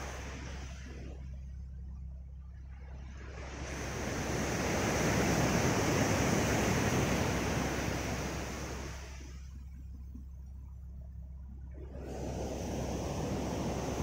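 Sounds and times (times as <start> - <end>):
wave breaking on beach: 0.0 - 1.1, 3.1 - 9.5, 11.8 - 14.0.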